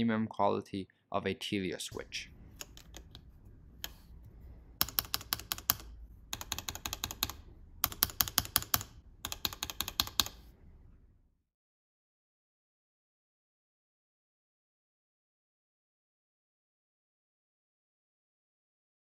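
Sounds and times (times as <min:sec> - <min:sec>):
mechanical keyboard switches pressed: 0:02.6 - 0:03.2, 0:04.8 - 0:10.4.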